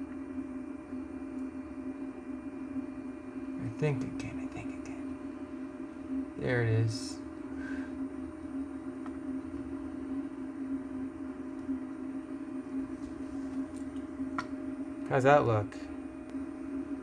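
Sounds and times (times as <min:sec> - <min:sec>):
low hum: 0:00.0 - 0:17.0.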